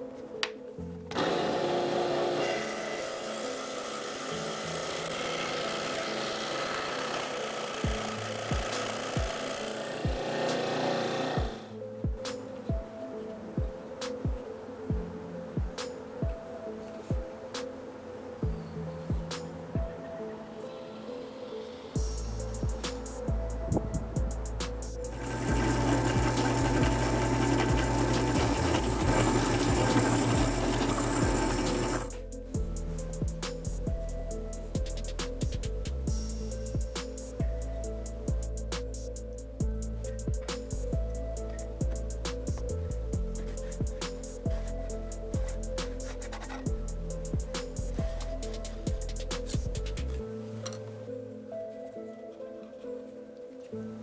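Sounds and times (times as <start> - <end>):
drill press motor hum: 1.1 - 11.7, 25.1 - 32.2
scroll saw cutting: 1.1 - 11.7, 24.6 - 32.2.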